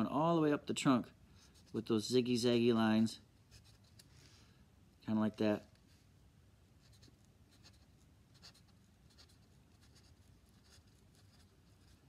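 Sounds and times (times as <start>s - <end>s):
marker squeaking on paper: 6.8s - 12.0s.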